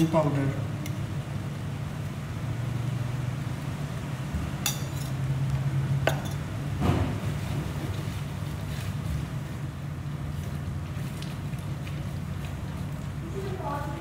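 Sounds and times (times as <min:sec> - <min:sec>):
spoon clinking on metal pot: 0:04.7 - 0:05.2, 0:06.1 - 0:06.4.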